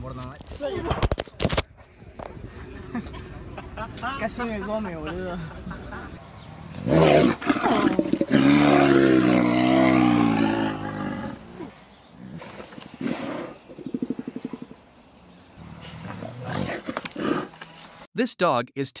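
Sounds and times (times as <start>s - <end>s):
growls: 6.7s - 14.6s, 15.6s - 17.6s
bear roaring: 6.8s - 14.7s, 15.6s - 17.6s.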